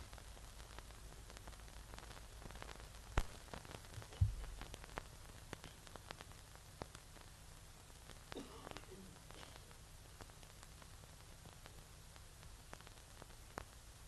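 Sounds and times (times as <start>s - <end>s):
crackling clicks: 0.0s - 14.0s
faint hiss: 0.0s - 14.0s
low thump: 4.2s - 4.6s.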